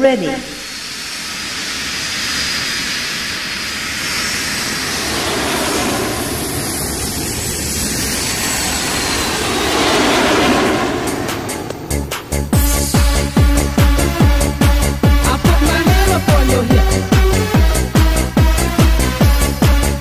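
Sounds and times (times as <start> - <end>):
jet engine rumble: 0.0 - 20.0.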